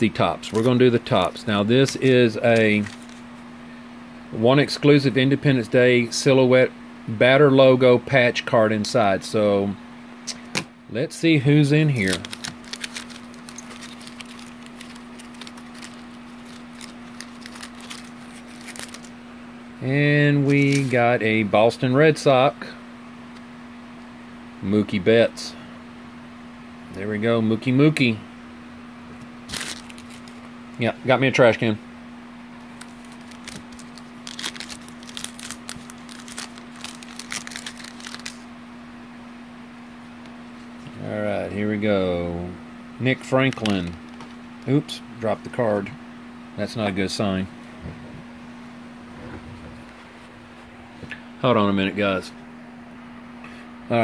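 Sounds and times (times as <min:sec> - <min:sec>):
trading cards rustling and clicking: 0:00.0 - 0:03.3, 0:11.9 - 0:19.2, 0:20.4 - 0:21.0, 0:29.5 - 0:30.9, 0:32.6 - 0:38.4, 0:43.2 - 0:44.4
steady low hum: 0:00.0 - 0:54.0
plastic wrapper crinkling: 0:00.5 - 0:03.2, 0:11.9 - 0:19.1, 0:29.5 - 0:30.5, 0:32.7 - 0:38.4.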